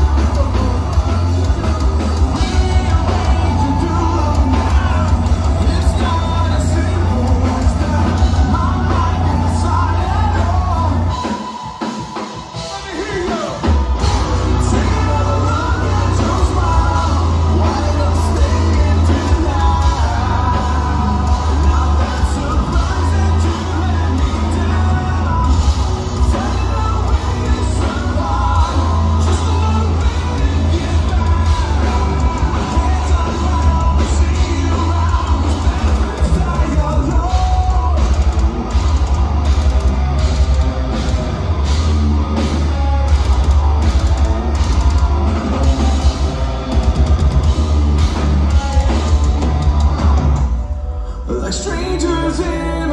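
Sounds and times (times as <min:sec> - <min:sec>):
man singing: 0:00.0 - 0:11.5, 0:12.6 - 0:39.0, 0:51.0 - 0:52.9
live metal band playing: 0:00.0 - 0:52.9.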